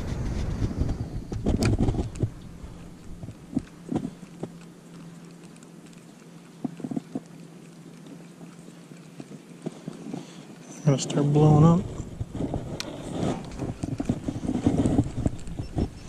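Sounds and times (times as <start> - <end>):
muffled wind rumble: 0.0 - 4.2, 11.5 - 16.0
body movement against camera: 0.0 - 5.8, 6.5 - 7.4, 8.1 - 16.0.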